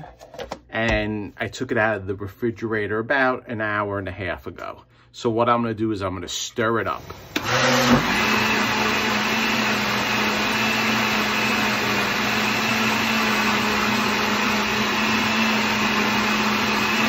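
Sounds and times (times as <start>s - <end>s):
blender motor running: 7.0s - 17.0s.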